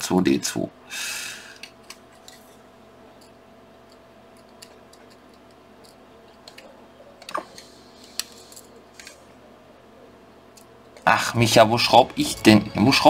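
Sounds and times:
small plastic parts clicking: 0:03.2 - 0:09.2.

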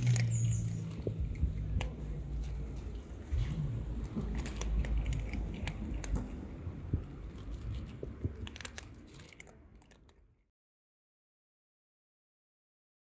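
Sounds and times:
low rumble: 0:00.0 - 0:09.3
cats crunching dry kibble: 0:00.0 - 0:10.4.

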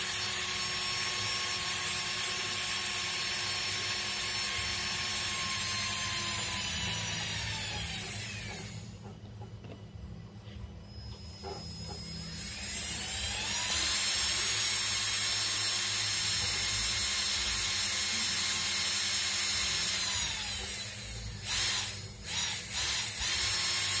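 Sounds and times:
electric motor whining: 0:11.0 - 0:15.2.

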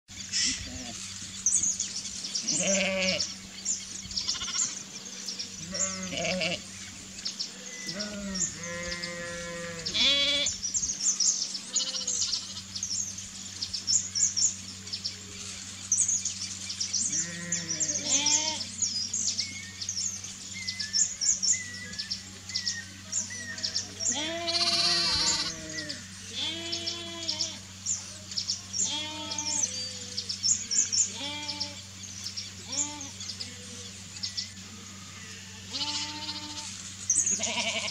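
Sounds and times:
small birds chirping: 0:00.1 - 0:37.9
steady low hum: 0:00.1 - 0:37.9
livestock bleating: 0:02.4 - 0:03.3, 0:04.2 - 0:04.8, 0:05.6 - 0:06.7, 0:07.8 - 0:10.6, 0:11.7 - 0:12.7, 0:17.1 - 0:18.7, 0:23.5 - 0:27.6, 0:28.8 - 0:30.1, 0:31.1 - 0:31.8, 0:32.7 - 0:33.7, 0:35.5 - 0:37.9.

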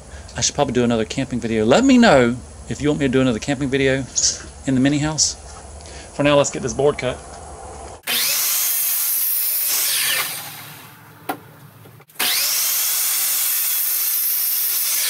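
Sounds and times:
chop saw cutting wood: 0:08.0 - 0:11.4, 0:12.0 - 0:15.0.

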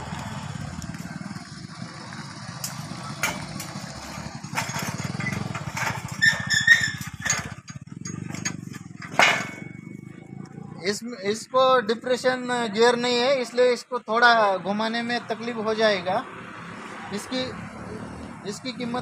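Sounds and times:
metal knocks and clanks: 0:02.6 - 0:10.0.

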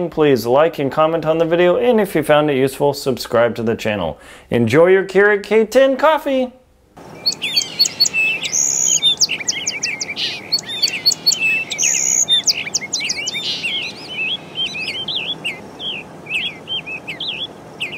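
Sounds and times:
birds chirping and singing: 0:07.0 - 0:17.9.

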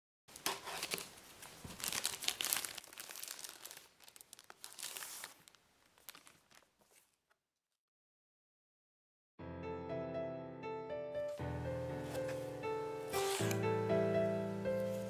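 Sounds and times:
packaging rustling and crinkling: 0:00.3 - 0:07.4, 0:13.1 - 0:13.6.

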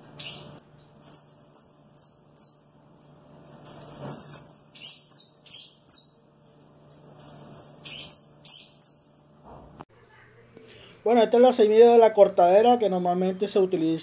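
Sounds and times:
finch chirping: 0:00.0 - 0:02.7, 0:04.0 - 0:06.2, 0:07.6 - 0:09.2.

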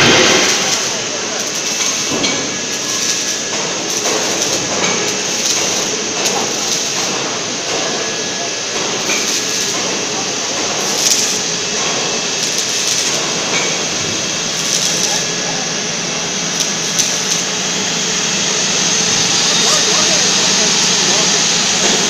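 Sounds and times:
welding machine running: 0:00.0 - 0:22.0
faint clicks and crackle: 0:14.6 - 0:15.2.

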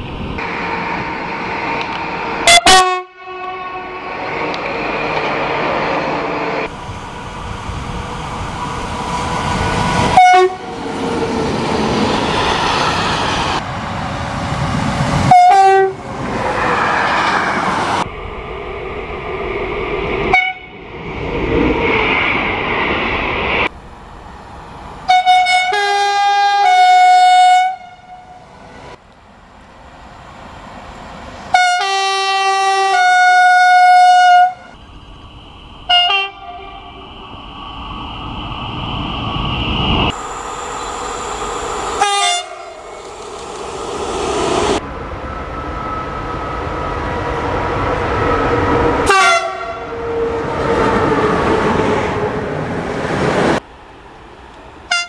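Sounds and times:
rumble of passing trains: 0:00.0 - 0:55.0
locomotive horn blasts: 0:02.4 - 0:04.2, 0:10.2 - 0:10.7, 0:15.3 - 0:16.0, 0:20.3 - 0:20.7, 0:25.1 - 0:28.4, 0:31.5 - 0:34.8, 0:35.9 - 0:36.9, 0:42.0 - 0:42.8, 0:49.0 - 0:49.9.

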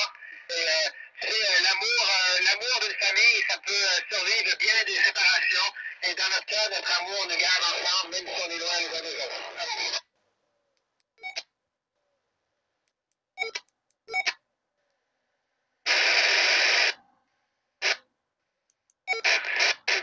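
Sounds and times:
radio static bursts: 0:00.0 - 0:10.0, 0:15.9 - 0:17.0, 0:19.2 - 0:20.0
noisy radio audio: 0:00.0 - 0:10.1, 0:15.9 - 0:17.2, 0:17.8 - 0:18.0, 0:19.2 - 0:20.0.

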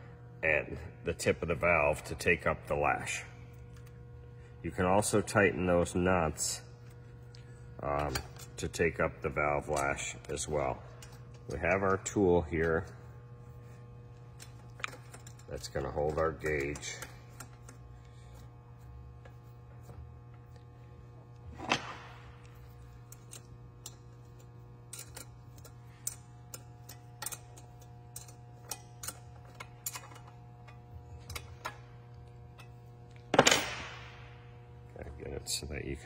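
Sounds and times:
low steady hum: 0:00.0 - 0:36.0.

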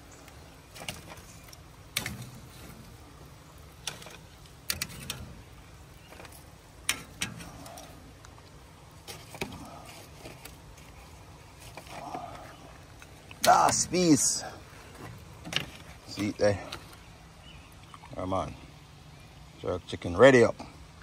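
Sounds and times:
metal tongs clacking on grill grate: 0:00.8 - 0:03.0, 0:03.8 - 0:08.0.

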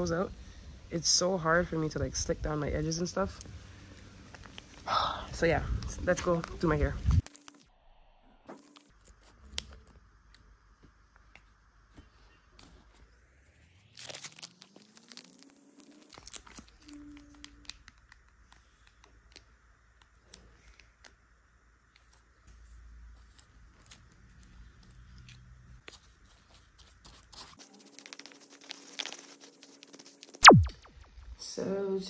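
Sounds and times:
plastic packets tearing and crinkling: 0:07.2 - 0:07.6, 0:13.9 - 0:18.6, 0:26.8 - 0:30.4.

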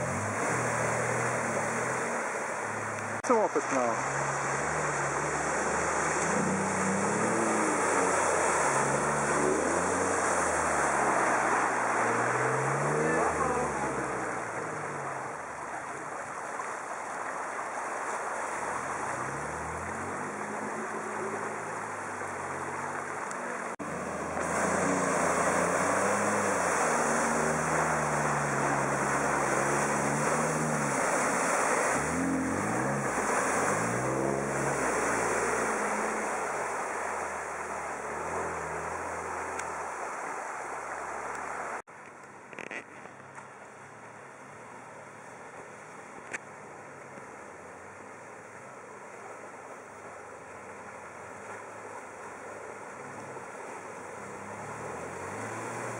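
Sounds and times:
car engine revving: 0:00.0 - 0:16.2, 0:18.0 - 0:41.9, 0:52.7 - 0:55.9
water and mud splashing: 0:00.0 - 0:55.9.

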